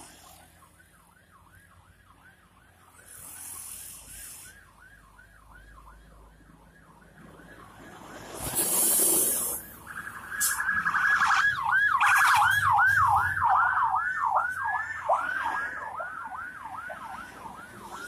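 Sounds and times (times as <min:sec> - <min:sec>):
police siren yelping: 0:09.2 - 0:18.0.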